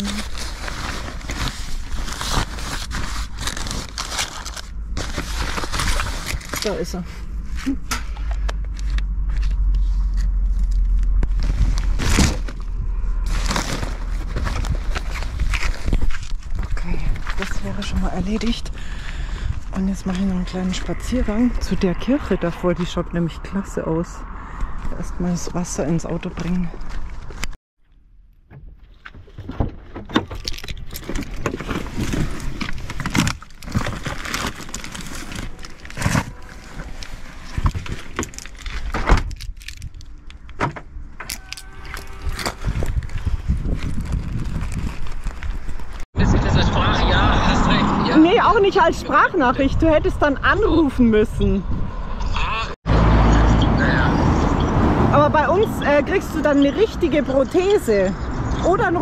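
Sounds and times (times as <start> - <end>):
fabric bag rustling: 0.0 - 7.6, 11.3 - 17.7, 30.6 - 38.9
low rumble: 0.0 - 27.6, 31.3 - 56.8.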